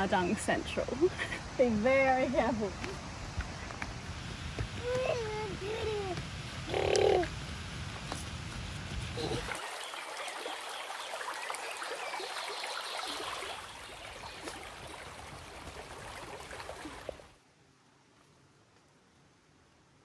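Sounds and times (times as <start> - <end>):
stream flowing over stones: 9.2 - 17.4.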